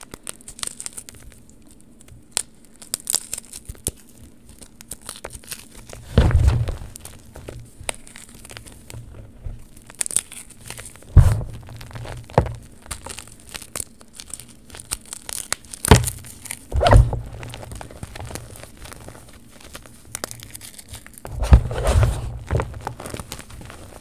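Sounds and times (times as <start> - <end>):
chalk crunching and crackling: 0.0 - 24.0
muffled thumps: 11.1 - 11.8, 16.7 - 17.6, 21.3 - 22.9.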